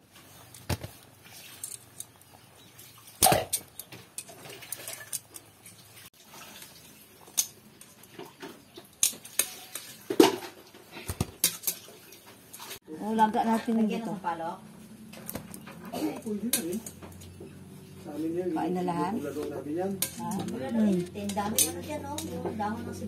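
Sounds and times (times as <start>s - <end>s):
metal tongs clinking on pot: 8.9s - 10.0s, 16.2s - 17.4s, 19.9s - 22.7s.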